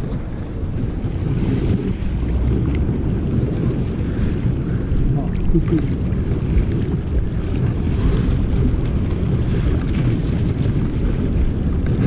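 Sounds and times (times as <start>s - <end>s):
sea water sloshing: 0.0s - 12.0s
small water splashes: 0.0s - 12.0s
wind buffeting microphone: 0.0s - 12.0s.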